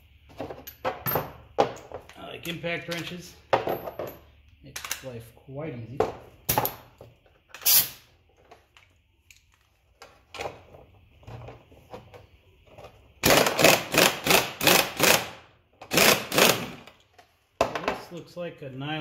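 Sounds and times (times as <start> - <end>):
impact wrench rattle: 13.2 - 17.0.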